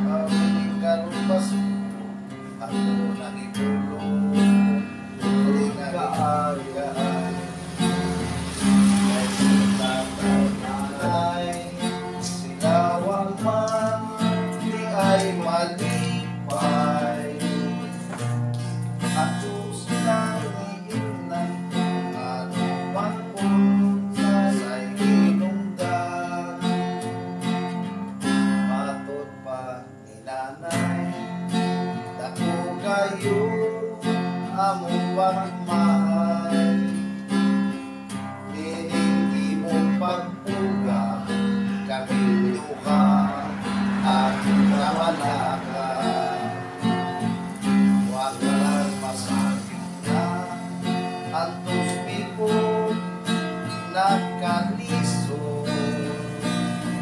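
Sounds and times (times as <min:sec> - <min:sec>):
acoustic guitar strumming: 0:00.0 - 0:57.0.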